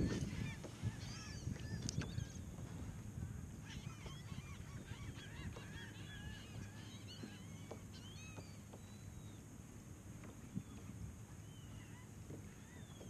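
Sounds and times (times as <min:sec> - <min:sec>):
wind rumble on microphone: 0:00.0 - 0:07.3, 0:10.1 - 0:13.0
waterbirds calling: 0:00.0 - 0:13.0.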